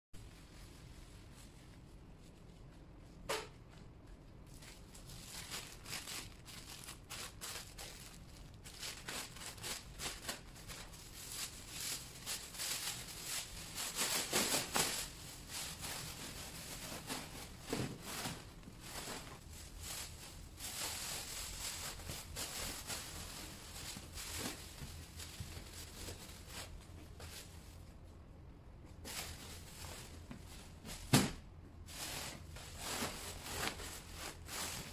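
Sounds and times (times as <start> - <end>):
plastic bag rustling and crinkling: 4.4 - 28.2, 29.0 - 31.2, 31.8 - 34.9.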